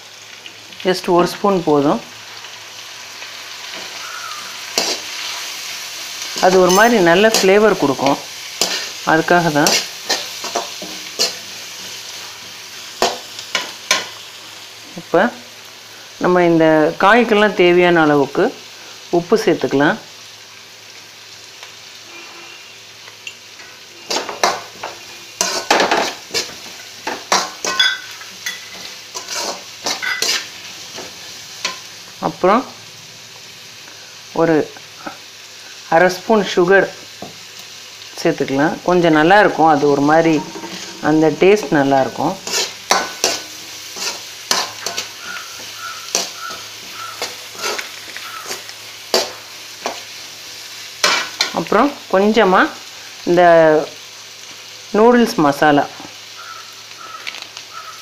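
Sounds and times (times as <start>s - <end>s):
vegetables sizzling in oil: 0.0s - 58.0s
metal spatula scraping wok: 3.6s - 14.2s, 22.1s - 31.9s, 38.9s - 50.1s, 51.0s - 51.6s.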